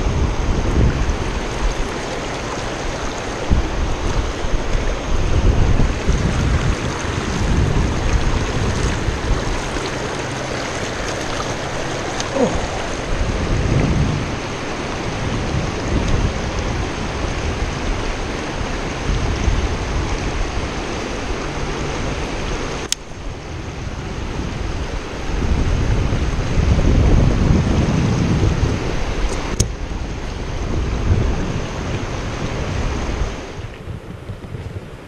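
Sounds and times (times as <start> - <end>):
river rapids rushing: 0.0 - 27.0
low rumbling: 0.0 - 34.4.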